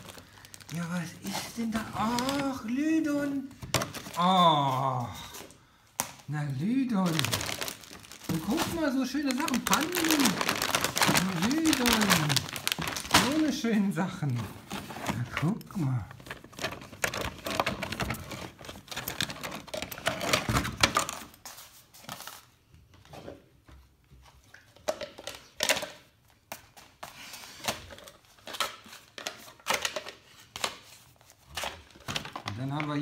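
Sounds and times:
cardboard packaging rustling: 0.0 - 5.6, 6.6 - 22.6.

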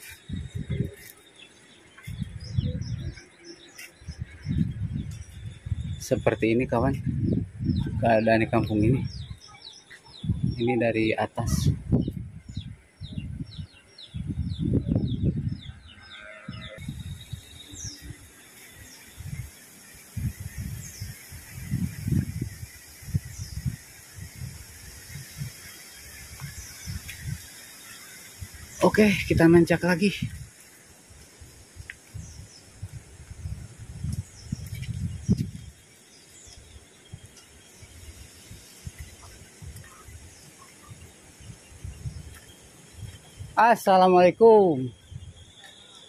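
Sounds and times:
footsteps on stone path: 0.0 - 5.6, 9.6 - 10.2, 33.8 - 37.9, 42.2 - 43.6
low rumbles on microphone: 0.2 - 1.0, 4.0 - 9.4, 11.5 - 18.2, 32.2 - 35.8.

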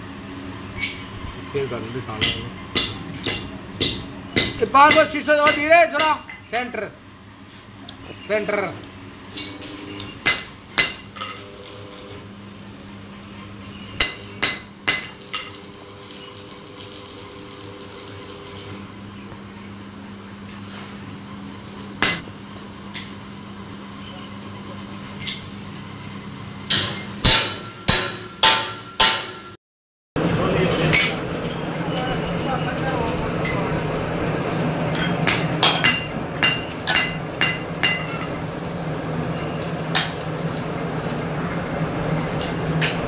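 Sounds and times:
metal tools clinking on steel: 0.8 - 1.2, 9.3 - 9.8, 25.1 - 25.6.

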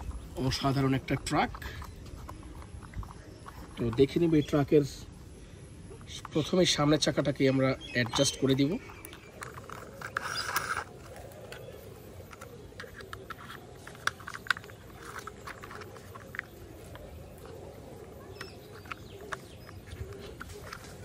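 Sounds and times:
plastic toy parts clicking: 6.0 - 21.0.

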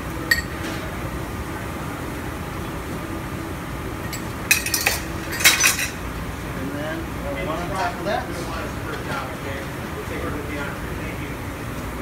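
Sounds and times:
steady background hum: 0.0 - 12.0
dishware clinking: 0.3 - 0.8, 4.1 - 6.0.

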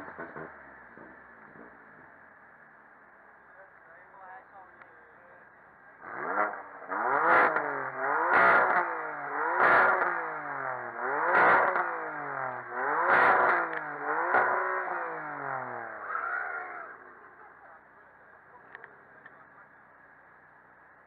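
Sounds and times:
exhaust crack: 0.0 - 2.9, 5.9 - 20.0
car engine revving: 5.9 - 20.1.

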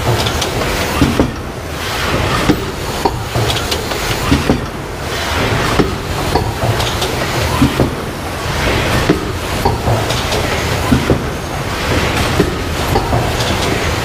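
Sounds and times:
box making machine clattering: 0.0 - 14.0.

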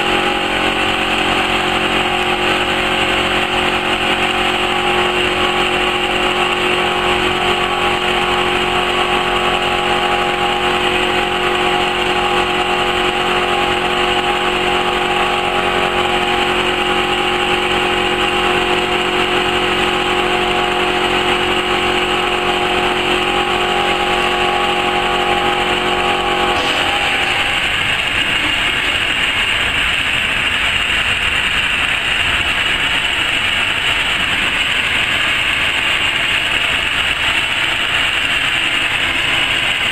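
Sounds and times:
hum of steady tones: 0.0 - 29.4
cutting machine noise: 0.0 - 39.9.

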